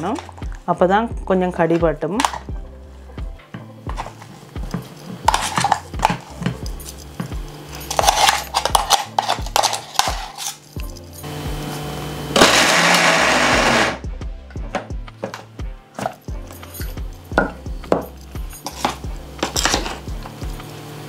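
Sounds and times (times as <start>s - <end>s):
metal spoon scraping in jar: 4.8s - 11.2s, 18.5s - 20.0s
mixer grinder running: 5.0s - 10.6s, 11.2s - 14.1s, 17.8s - 21.0s.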